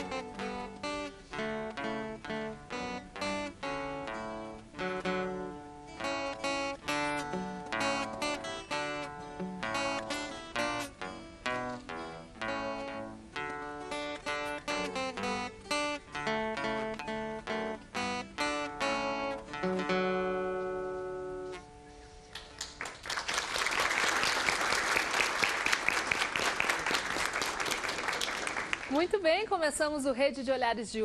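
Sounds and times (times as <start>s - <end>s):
acoustic guitar ensemble: 0.0s - 29.4s
audience applauding: 22.3s - 29.1s.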